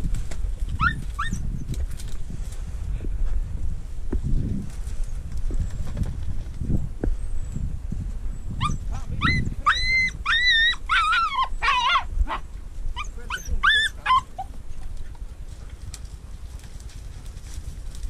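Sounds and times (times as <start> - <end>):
dog yelping and whining: 0.8 - 1.4, 8.6 - 14.5.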